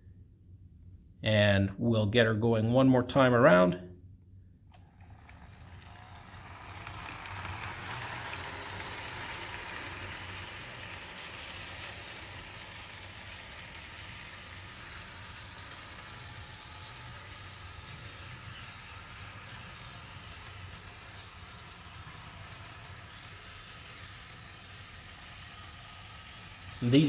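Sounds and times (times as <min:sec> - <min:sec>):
model train motor whirring: 0:04.7 - 0:27.0
wheels clicking over rails: 0:04.7 - 0:27.0.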